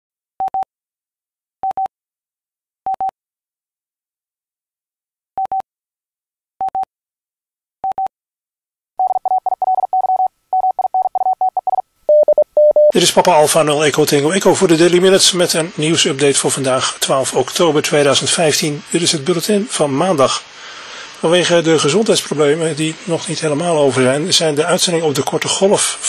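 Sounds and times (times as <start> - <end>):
beep tone pips: 9.0 - 12.9.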